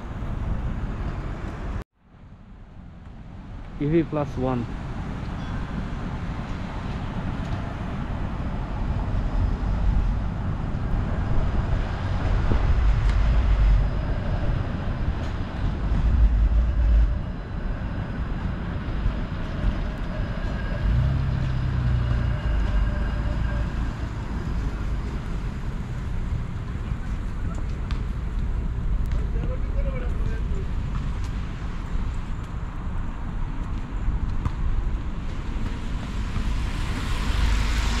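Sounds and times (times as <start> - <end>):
streetcar rumbling: 0.0 - 38.0
traffic on wet pavement: 3.0 - 38.0
steady low hum: 7.8 - 27.4.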